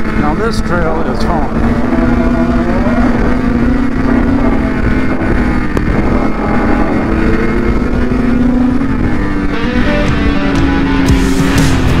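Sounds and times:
snowmobile engine running: 0.0s - 12.0s
wind noise on microphone: 1.4s - 10.5s.

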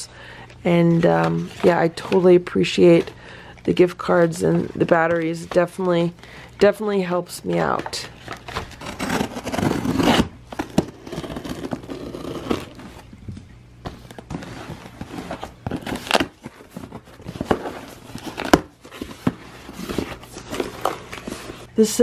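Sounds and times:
packaging crinkling and rustling: 7.6s - 13.2s, 13.9s - 21.7s
cardboard box being opened: 7.8s - 13.0s, 13.9s - 21.7s.

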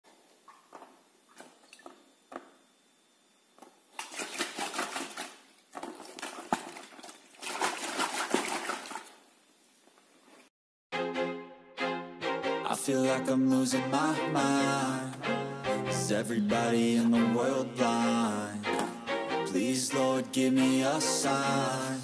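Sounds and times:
water sloshing in a ball: 3.9s - 9.2s.

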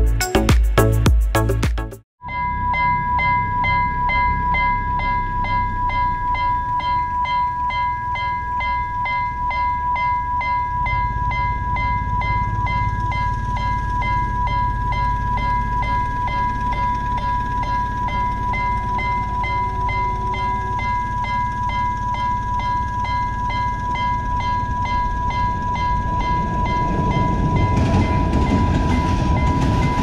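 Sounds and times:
level crossing bell ringing: 2.2s - 30.0s
low rumble: 11.0s - 30.0s.

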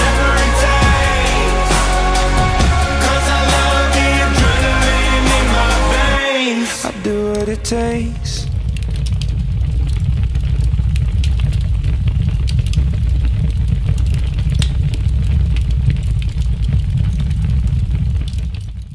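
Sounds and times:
deep rumble: 0.0s - 6.2s, 7.0s - 18.6s
faint crackles: 8.5s - 18.9s.

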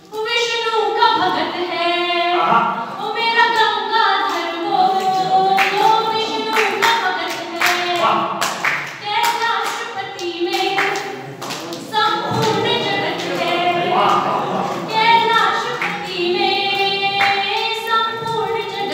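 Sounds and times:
woman singing unaccompanied: 0.0s - 8.3s, 9.0s - 11.2s, 11.8s - 18.9s
hand claps: 3.5s - 18.9s.

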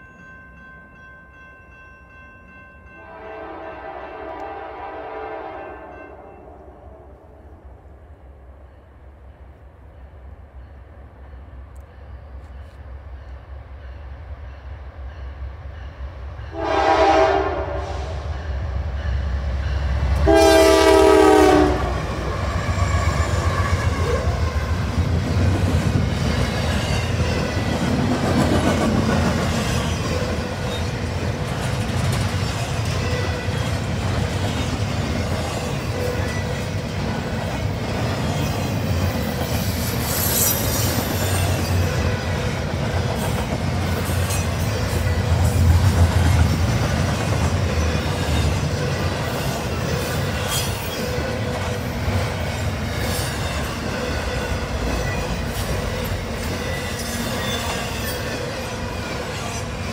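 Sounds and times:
locomotive horn blasts: 3.0s - 7.1s, 16.5s - 18.2s, 20.2s - 22.2s
train rumble: 9.1s - 59.9s
wheels clattering on rails: 24.8s - 59.9s.

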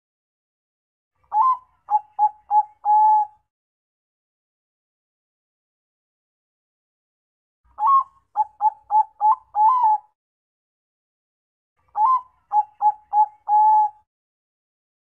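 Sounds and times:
dove cooing: 1.3s - 3.4s, 7.8s - 10.1s, 12.0s - 14.0s.

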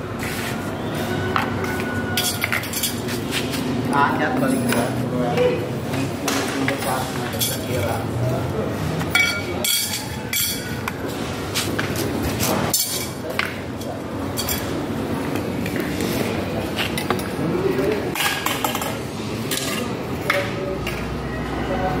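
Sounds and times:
steady background noise: 0.0s - 22.0s
steel tubes clinking: 2.2s - 3.0s, 9.1s - 10.8s.

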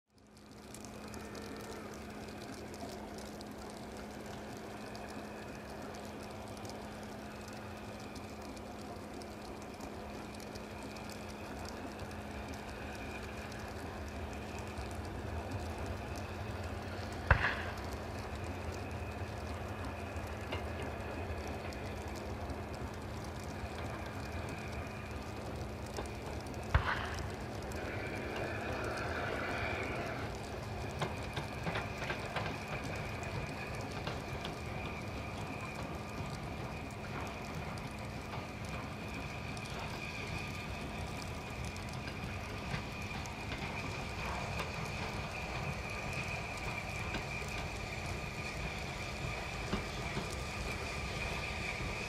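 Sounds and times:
steady hum: 0.1s - 52.0s
steam locomotive hiss and rumble: 0.1s - 52.0s.

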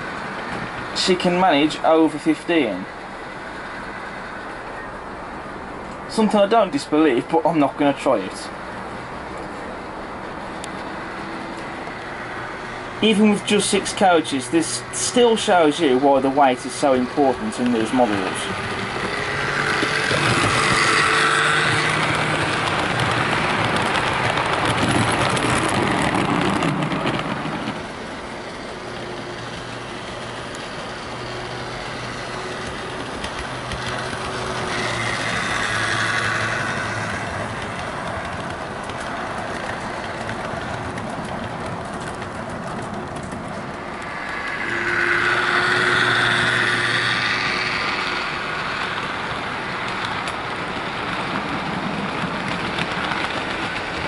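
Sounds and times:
wheels rattling on track: 0.0s - 54.0s
model train motor hum and whine: 13.5s - 26.2s, 27.0s - 54.0s.

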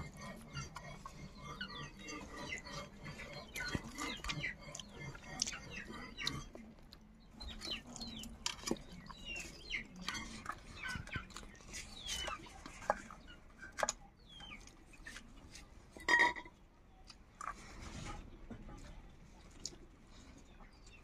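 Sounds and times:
birds chirping: 0.0s - 16.3s.

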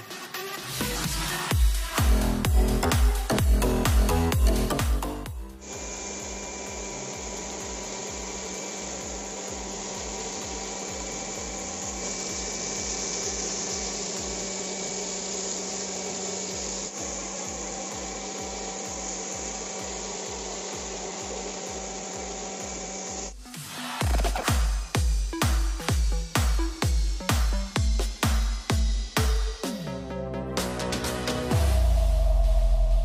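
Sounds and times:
vacuum motor whine: 0.9s - 23.4s.

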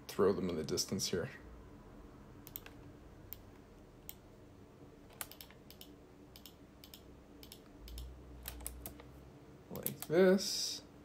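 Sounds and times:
low steady hum: 0.0s - 11.0s
mouse and keyboard clicks: 2.5s - 3.4s, 5.1s - 9.1s.

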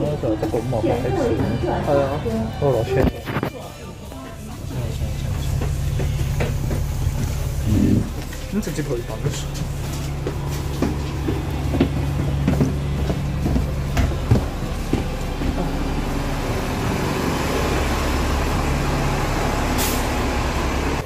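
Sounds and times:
bus engine idling: 0.0s - 21.0s
footsteps and knocks: 3.1s - 16.5s
air hiss burst: 19.8s - 20.2s.

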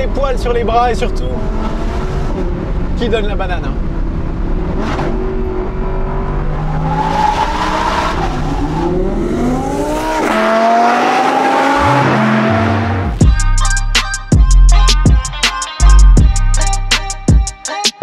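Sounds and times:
sports car engine accelerating: 0.4s - 13.2s
music with drum beat: 13.2s - 18.0s.

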